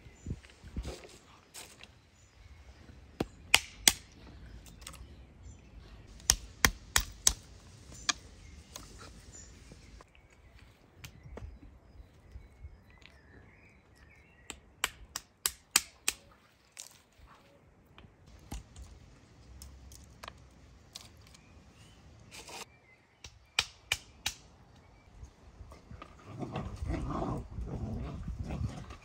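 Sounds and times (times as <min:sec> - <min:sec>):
birds chirping: 0:00.0 - 0:15.1
stone cracking walnut shells: 0:03.2 - 0:05.1.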